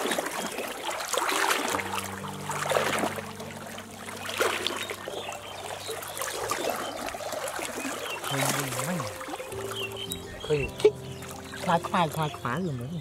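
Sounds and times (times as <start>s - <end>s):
basket sweeping through water: 0.0s - 10.0s
water splashing and sloshing: 0.0s - 13.0s.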